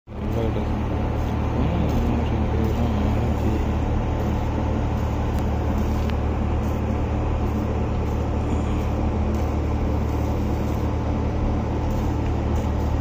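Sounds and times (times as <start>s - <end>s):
low engine drone: 0.1s - 13.0s.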